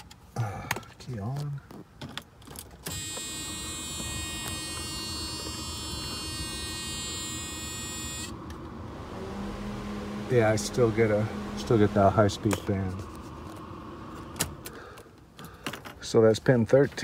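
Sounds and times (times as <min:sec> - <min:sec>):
electric cooling fan running: 0:04.3 - 0:15.0.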